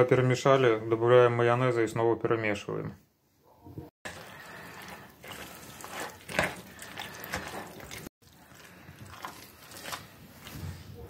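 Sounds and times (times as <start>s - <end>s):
spoon stirring wet salad: 4.1s - 10.7s.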